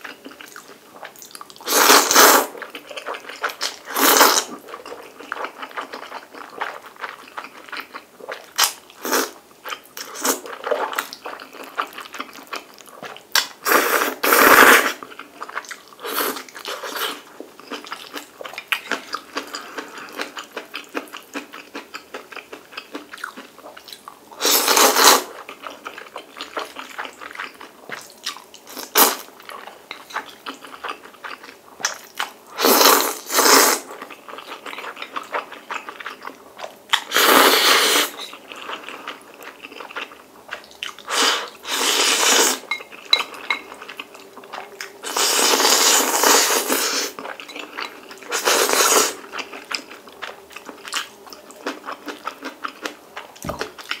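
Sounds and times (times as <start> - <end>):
wet chewing and smacking: 0.0 - 1.6, 4.6 - 8.9, 15.0 - 24.2, 25.4 - 28.7, 38.3 - 41.1, 49.2 - 54.0
noodle slurping: 1.7 - 2.6, 41.1 - 42.8, 45.0 - 47.3, 48.3 - 49.3.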